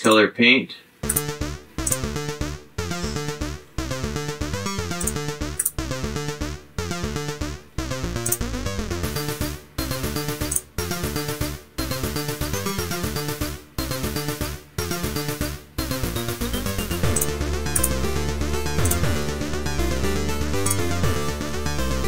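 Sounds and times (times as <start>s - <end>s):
electronic music with synthesizer riff: 1.0s - 11.4s, 15.0s - 22.0s.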